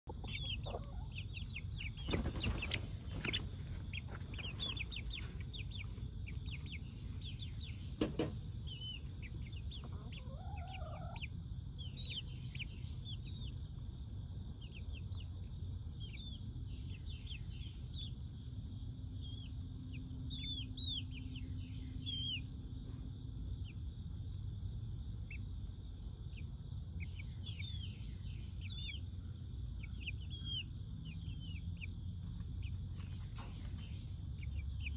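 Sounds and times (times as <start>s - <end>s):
chicks peeping: 0.0s - 34.9s
insects droning: 0.1s - 34.9s
sharp knocks: 8.0s - 8.4s.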